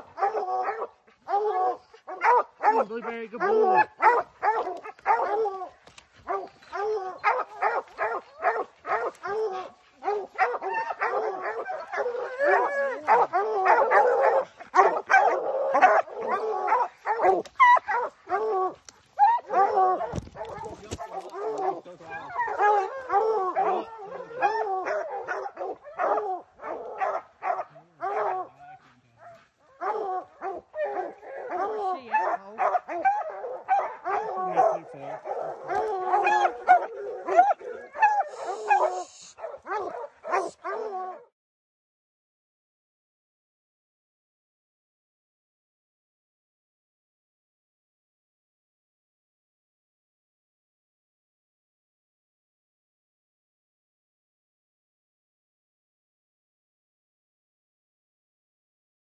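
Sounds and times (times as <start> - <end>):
hounds barking and baying: 0.0 - 41.3.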